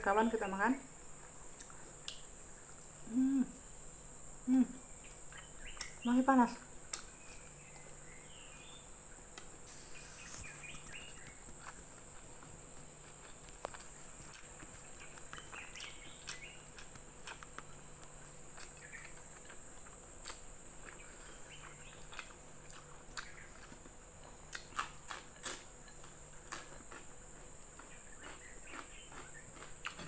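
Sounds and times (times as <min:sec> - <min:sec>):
close chewing mouth sounds: 0:10.5 - 0:30.0.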